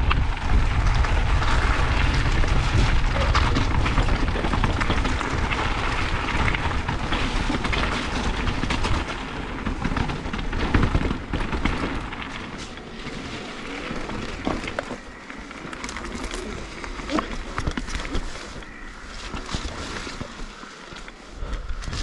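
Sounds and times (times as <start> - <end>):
wind buffeting microphone: 0.0 - 20.6
bike rattling and knocking: 0.0 - 22.0
tyres crunching over gravel: 0.0 - 22.0.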